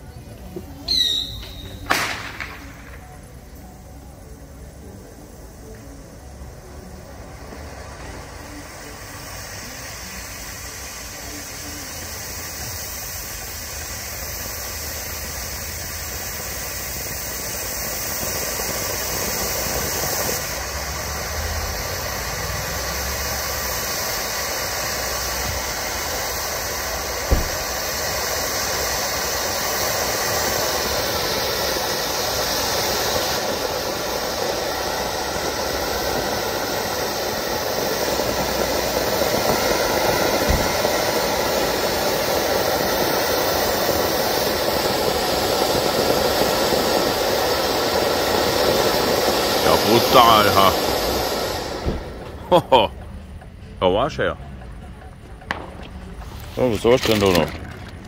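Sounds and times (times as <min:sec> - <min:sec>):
firework fountain hissing: 0:00.0 - 0:58.0
sharp bang: 0:01.0 - 0:03.3, 0:27.2 - 0:27.9, 0:40.4 - 0:41.0, 0:55.4 - 0:57.6.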